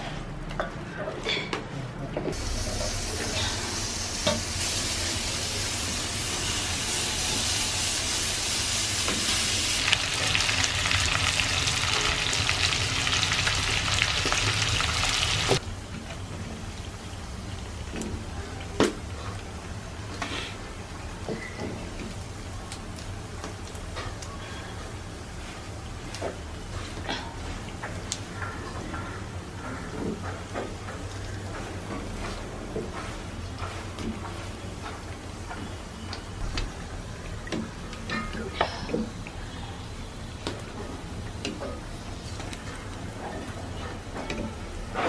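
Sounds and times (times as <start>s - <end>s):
meat sizzling in oil: 2.4s - 15.6s.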